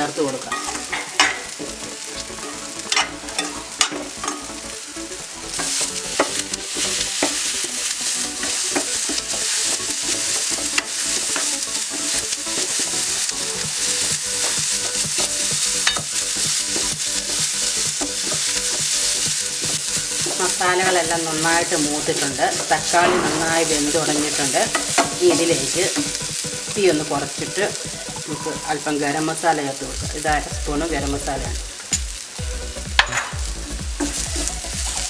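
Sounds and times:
masala sizzling in oil: 0:00.0 - 0:35.0
wooden spatula scraping: 0:05.5 - 0:29.1.

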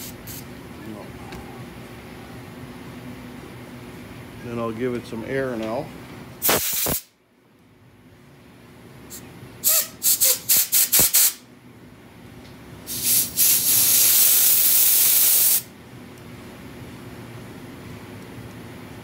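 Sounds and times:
compressed air hissing puffs: 0:06.4 - 0:07.1, 0:12.9 - 0:15.7.

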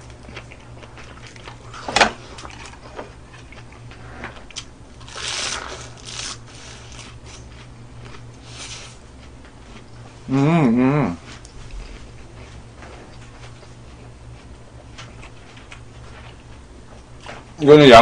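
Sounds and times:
lettuce cracking: 0:04.5 - 0:07.1
crunching raw lettuce: 0:05.0 - 0:09.0.

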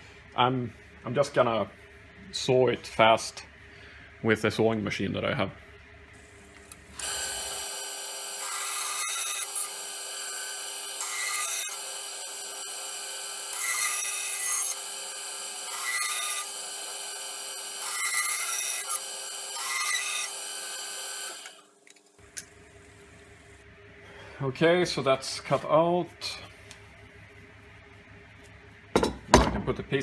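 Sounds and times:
band saw running: 0:06.9 - 0:21.7
saw blade cutting wood: 0:07.0 - 0:21.6.

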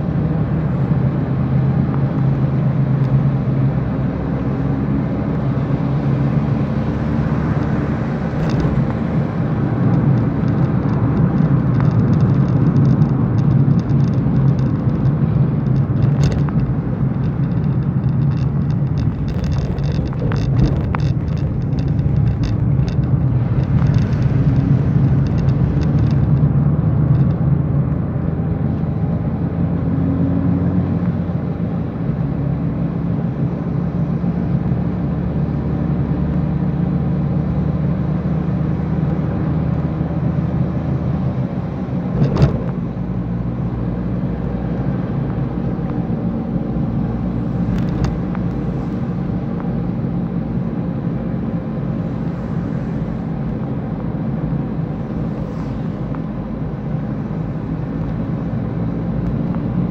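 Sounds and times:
car engine and tyres drone: 0:00.0 - 0:59.9
light ticks and crackles: 0:09.8 - 0:27.5.

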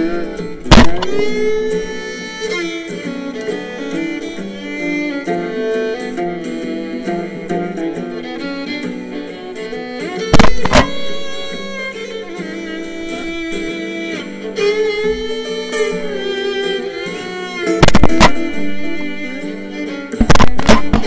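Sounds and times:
country song with fiddle and guitar: 0:00.0 - 0:21.0
shotgun shots: 0:00.7 - 0:01.4, 0:10.4 - 0:11.0, 0:17.8 - 0:18.5.

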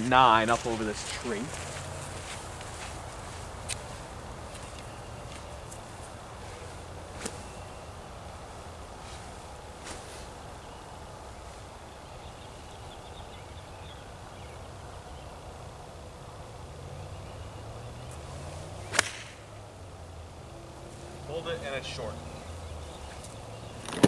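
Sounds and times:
golf club striking ball: 0:18.8 - 0:19.6.

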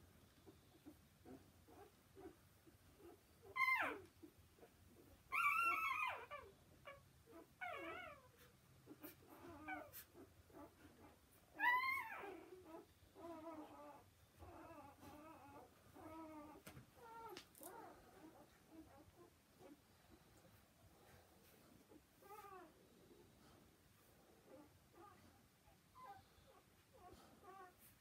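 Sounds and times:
puppies squealing and whining: 0:03.0 - 0:19.8, 0:21.5 - 0:22.8, 0:24.5 - 0:28.0.

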